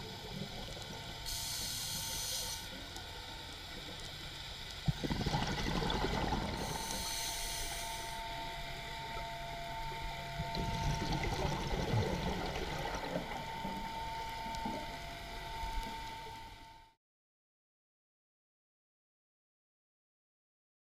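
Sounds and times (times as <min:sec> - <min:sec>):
underwater bubbles: 0:00.0 - 0:16.4
thin steady tone: 0:00.0 - 0:17.0
scuba diver breathing: 0:01.2 - 0:02.8, 0:04.9 - 0:08.4
brief hiss: 0:01.3 - 0:02.8, 0:06.6 - 0:08.3.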